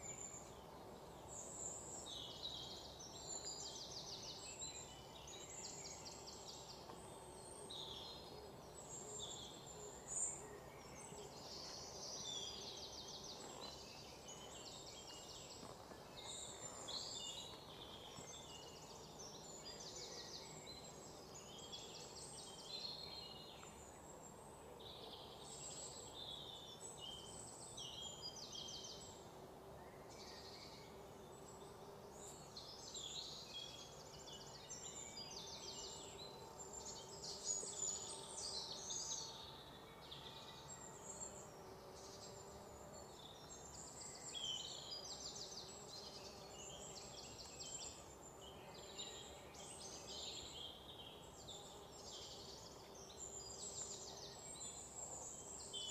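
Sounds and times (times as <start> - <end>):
low background hiss: 0.0 - 55.9
small birds chirping: 29.8 - 55.9.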